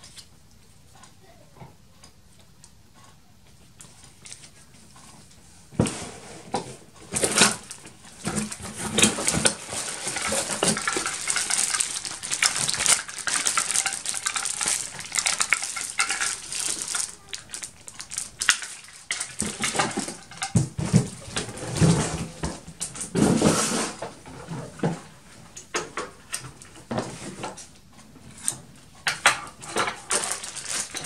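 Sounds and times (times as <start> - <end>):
plastic bags and cardboard rustling: 4.3 - 31.0
small hard parts clicking: 7.1 - 23.3, 28.4 - 31.0.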